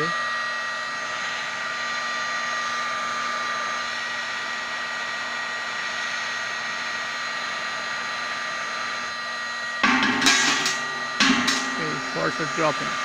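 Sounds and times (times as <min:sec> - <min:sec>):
heat gun hissing and whining: 0:00.0 - 0:13.0.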